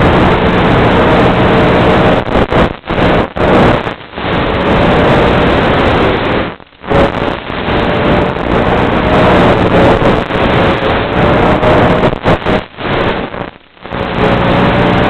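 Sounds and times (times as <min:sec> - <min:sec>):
faint motor and propeller hum: 0:00.0 - 0:15.0.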